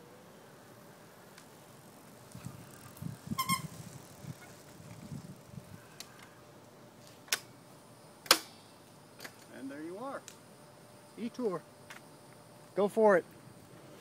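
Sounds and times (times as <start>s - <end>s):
electric bike rolling: 0.0s - 7.6s
brief high squeal: 3.3s - 3.8s.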